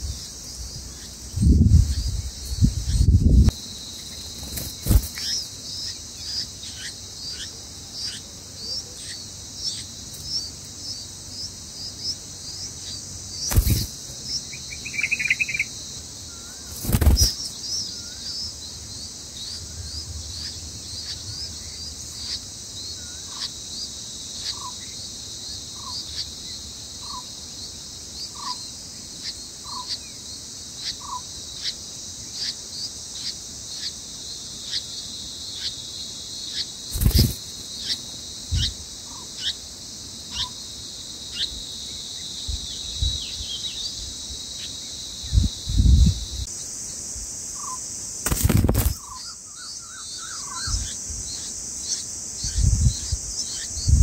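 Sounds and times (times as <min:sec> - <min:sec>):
high-pitched insect drone: 0:00.0 - 0:54.0
rapid thin chirps: 0:13.5 - 0:13.9, 0:16.7 - 0:17.5, 0:36.9 - 0:37.4.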